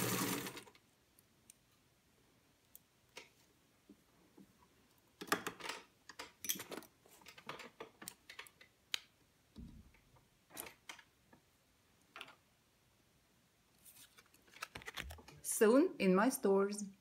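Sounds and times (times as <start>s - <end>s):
clicks and rustles of handling: 2.7s - 9.1s, 13.7s - 15.4s.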